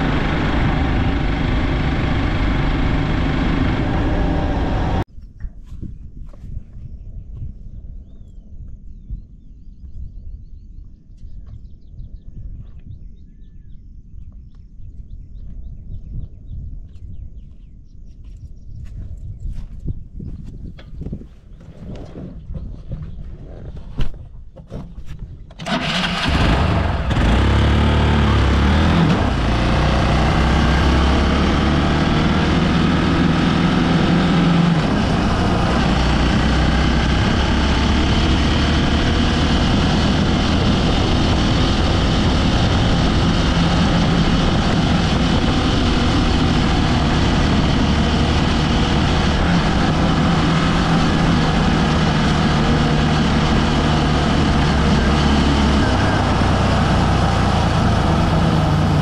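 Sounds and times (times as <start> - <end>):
motorcycle engine revving: 0.0 - 5.1, 25.5 - 59.0.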